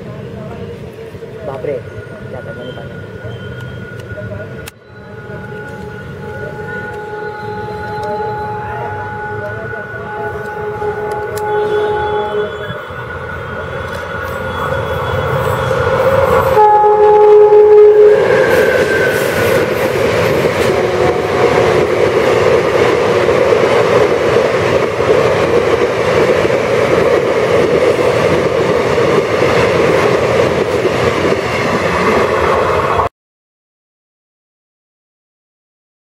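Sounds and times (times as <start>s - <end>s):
train wheels rattling on rails: 0.2s - 33.1s
train horn: 4.8s - 22.0s.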